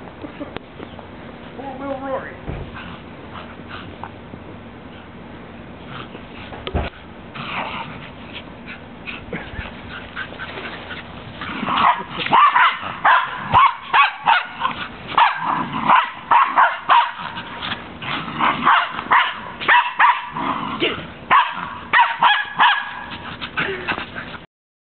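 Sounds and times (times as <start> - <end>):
dogs barking excitedly: 4.8 - 24.4.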